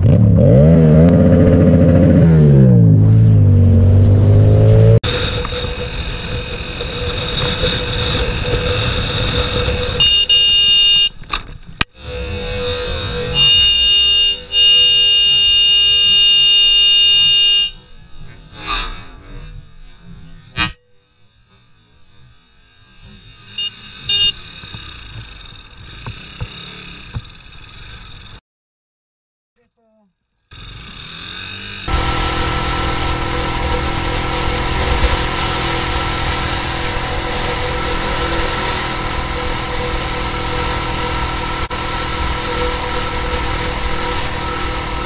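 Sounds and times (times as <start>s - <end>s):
motorcycle engine: 0.0s - 28.4s, 30.5s - 45.0s
horn blaring: 1.3s - 11.3s, 12.0s - 18.1s, 23.4s - 24.6s, 31.9s - 45.0s
wind noise: 5.0s - 13.4s.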